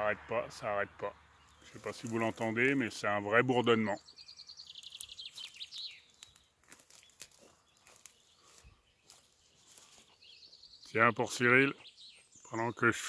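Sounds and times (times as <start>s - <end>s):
songbird trilling: 1.1s - 12.8s
faint clicks and rustles: 4.8s - 10.2s.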